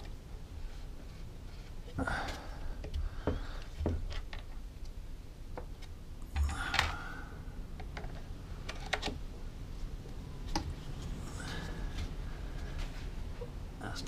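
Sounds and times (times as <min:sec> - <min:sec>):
plastic parts clicking and knocking: 0:05.5 - 0:07.0, 0:07.7 - 0:09.2.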